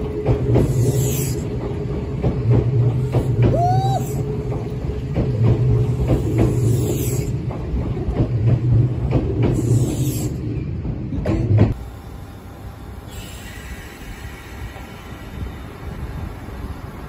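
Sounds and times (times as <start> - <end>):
train wheels clacking over rail joints: 0.0 - 11.8
train running gear hum: 0.0 - 17.0.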